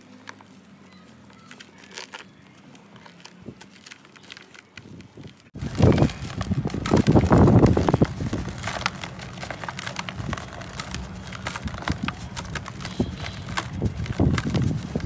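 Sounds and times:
grains trickling and crackling: 2.9s - 15.0s
cement chunk crumbling: 5.5s - 15.0s.

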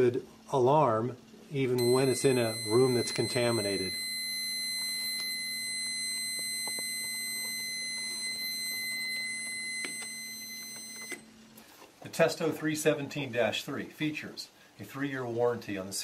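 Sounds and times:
high-pitched alarm tone: 1.8s - 11.2s.

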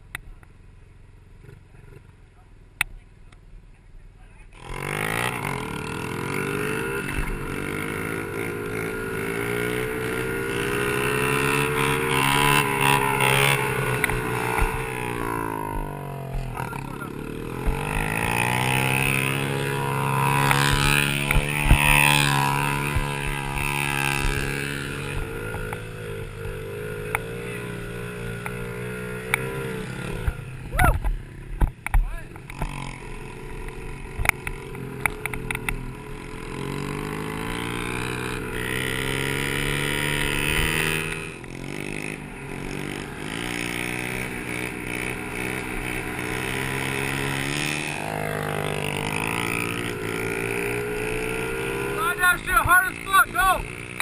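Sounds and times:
small motorbike engine revving: 4.5s - 54.0s.

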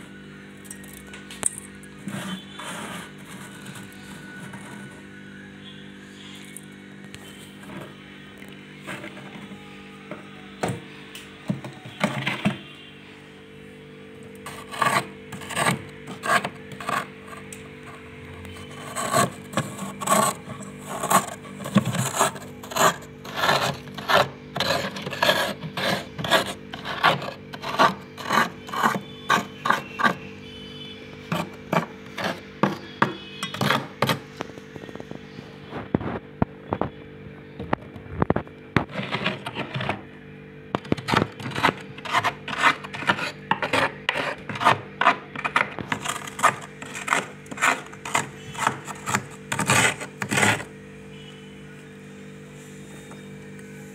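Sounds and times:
spoon scraping frost: 1.5s - 5.0s, 14.4s - 30.4s, 31.2s - 34.2s, 38.8s - 40.0s, 40.8s - 50.7s.

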